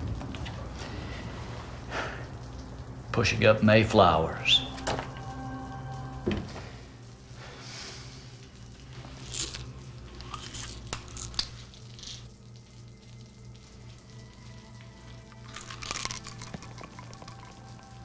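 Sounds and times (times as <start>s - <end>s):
low musical drone: 0.0s - 18.0s
small objects being handled: 9.0s - 12.3s.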